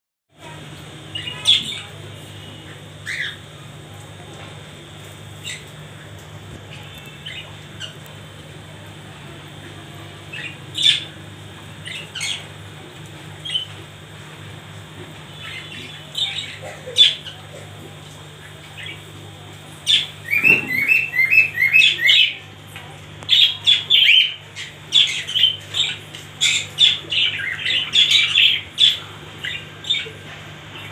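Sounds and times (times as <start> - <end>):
budgerigars chirping and squawking: 1.1 - 1.9, 2.5 - 3.5, 6.7 - 8.0, 10.3 - 11.2, 11.8 - 12.5, 13.4 - 13.8, 15.3 - 17.7, 19.8 - 22.4, 23.3 - 30.2.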